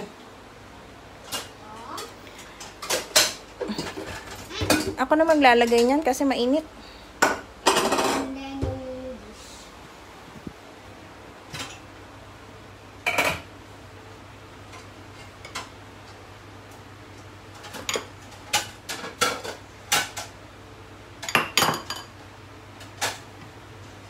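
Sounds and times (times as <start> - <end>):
low steady hum: 0.0 - 24.0
dishes clattering on a rack: 1.2 - 6.0, 7.2 - 8.3, 11.5 - 11.9, 13.0 - 13.5, 17.5 - 20.4, 21.2 - 22.1.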